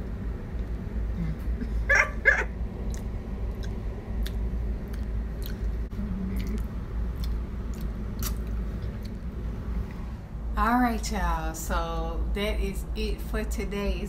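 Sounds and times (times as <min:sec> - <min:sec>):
person chewing crisp fruit: 0:02.8 - 0:09.3.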